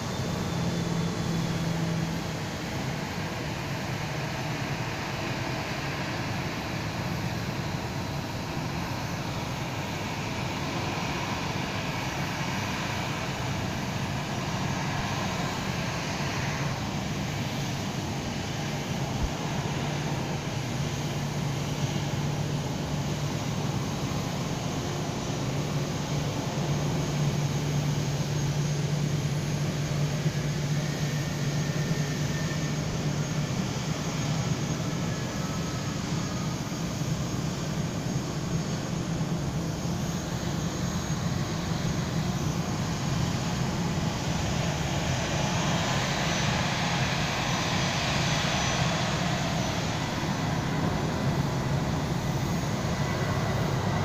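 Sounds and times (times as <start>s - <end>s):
jet engines of taxiing airliners: 0.0s - 54.0s.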